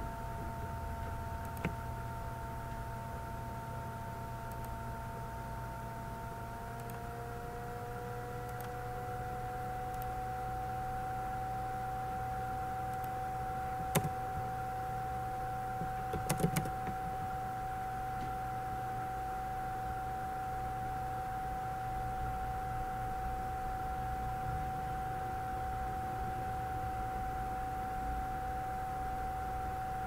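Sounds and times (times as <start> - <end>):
electrical whine with low hum: 0.0 - 30.0
computer mouse and keyboard clicks: 13.9 - 14.2, 15.8 - 17.3.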